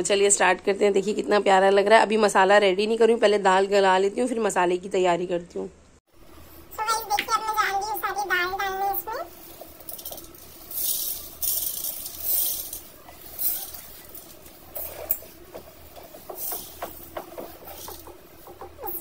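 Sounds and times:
dry grains rattling into metal pot: 9.4 - 19.0.

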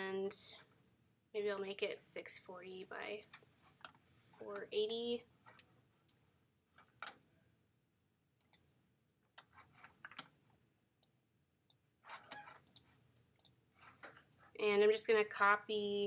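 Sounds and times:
computer mouse and keyboard clicks: 9.4 - 10.4.

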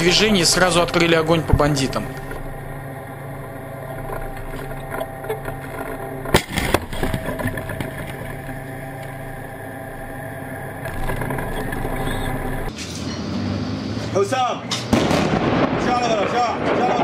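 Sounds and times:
tank engine running: 0.0 - 15.7
tank gun firing: 14.8 - 17.0.

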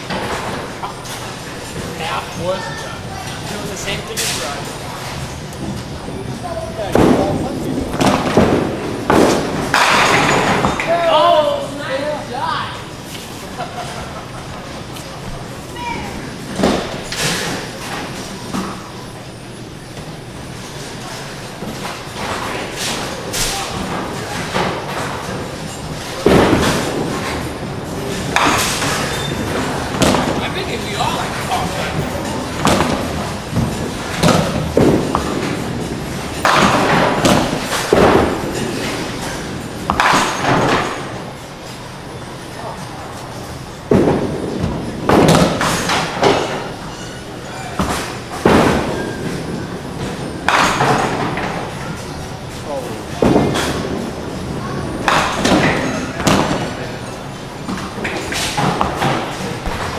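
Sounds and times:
bowling ball rolling: 3.2 - 10.9, 13.0 - 59.9
bowling alley knocks and clatter: 3.3 - 11.0, 20.8 - 41.4, 43.8 - 52.5, 53.1 - 59.9.

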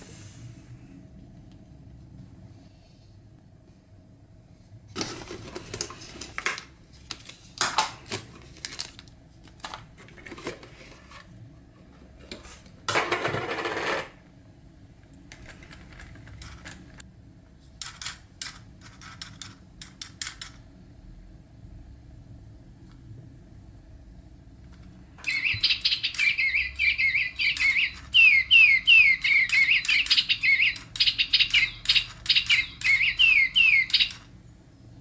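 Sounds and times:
plastic packaging clicks and crinkles: 5.0 - 10.6.

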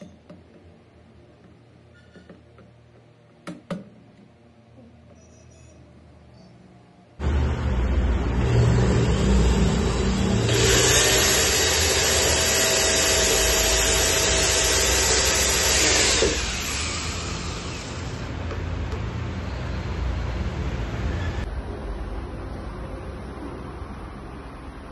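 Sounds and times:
electric drill motor: 7.3 - 18.5
drill cutting into wall: 8.3 - 18.4.

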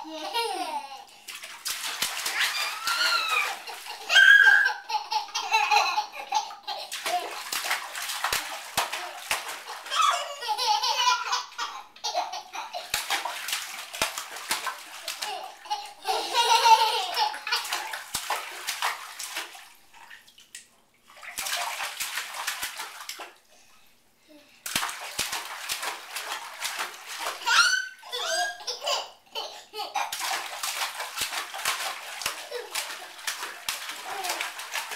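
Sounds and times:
hand slapping bathwater: 0.2 - 23.6, 24.6 - 28.6, 29.9 - 34.9
children laughing: 2.3 - 7.4, 9.1 - 12.9, 15.2 - 17.9.

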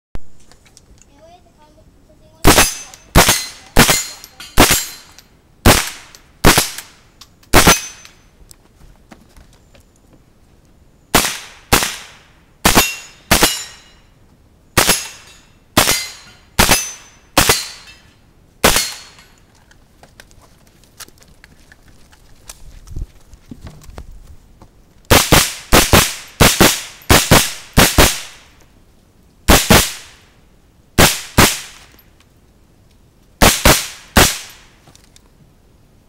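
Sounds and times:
rifle shots with echo: 2.4 - 8.0, 11.1 - 13.8, 14.8 - 15.2, 15.8 - 17.9, 18.6 - 19.2, 25.1 - 28.5, 29.5 - 30.2, 31.0 - 31.9, 33.4 - 34.6.

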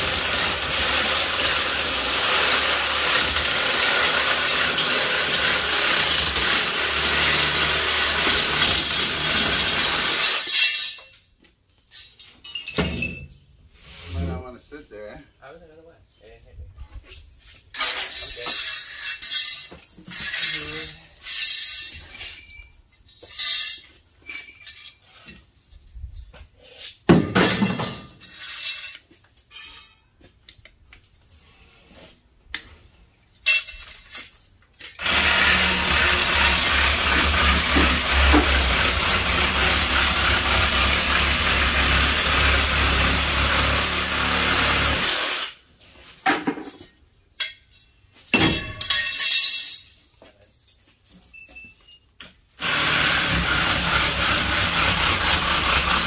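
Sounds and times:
power tool running: 0.0 - 10.5, 35.0 - 45.6, 52.6 - 56.0.

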